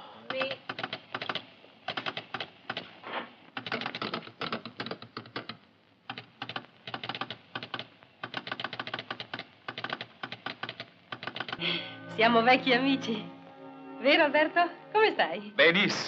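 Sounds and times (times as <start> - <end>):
mechanical keyboard clicking: 0.3 - 2.9, 3.6 - 11.6.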